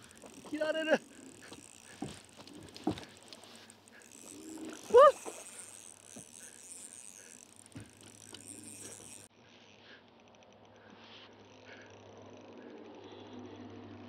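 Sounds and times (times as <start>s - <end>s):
fishing reel clicks and knocks: 0.0s - 13.1s
person exclaiming: 0.4s - 1.2s, 4.8s - 5.5s.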